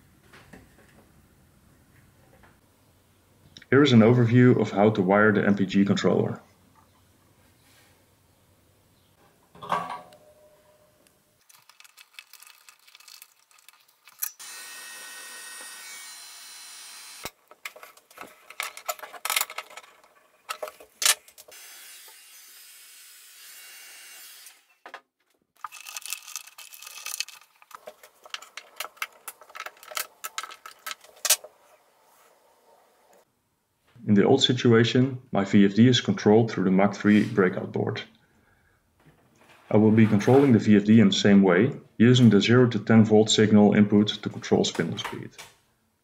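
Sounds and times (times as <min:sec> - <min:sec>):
plastic drag chain rattling: 0:11.5 - 0:14.4, 0:25.6 - 0:31.3.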